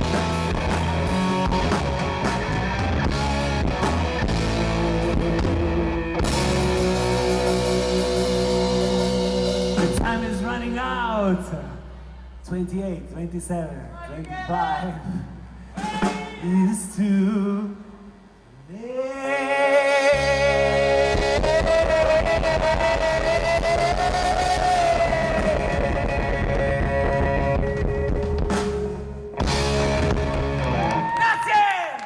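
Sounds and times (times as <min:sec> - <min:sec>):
electric guitar and bass chord: 0:00.0 - 0:13.8, 0:20.1 - 0:31.0
man singing a long note: 0:18.6 - 0:28.2.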